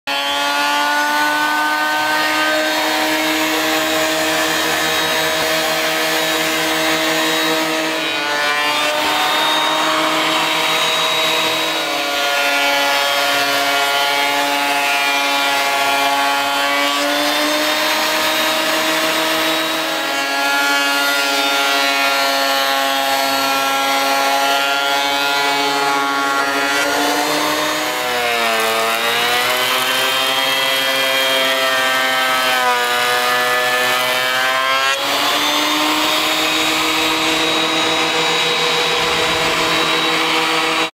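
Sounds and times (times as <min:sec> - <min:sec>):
cutter head shaving wood: 0:00.0 - 0:40.9
planer motor whine: 0:00.1 - 0:40.9.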